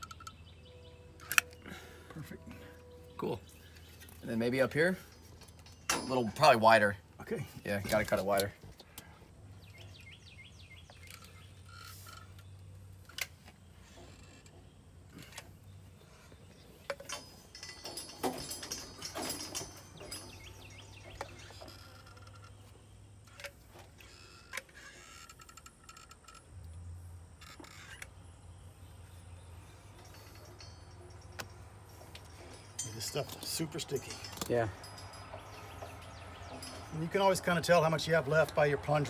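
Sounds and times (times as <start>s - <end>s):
handling noise: 10.8s - 26.5s, 29.6s - 38.6s.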